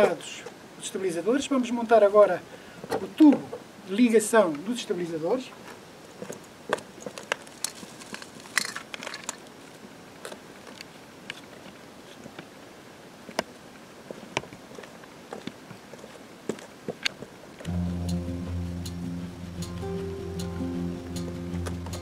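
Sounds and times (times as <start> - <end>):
plastic parts clicking and knocking: 7.2 - 9.5.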